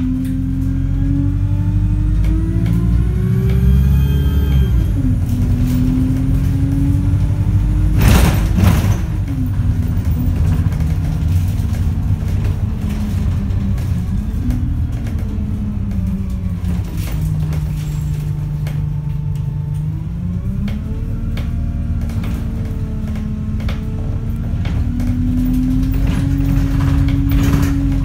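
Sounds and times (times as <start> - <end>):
bus engine and gearbox hum: 0.0 - 28.0
bodywork clicks and rattles: 8.0 - 20.0, 20.6 - 28.0.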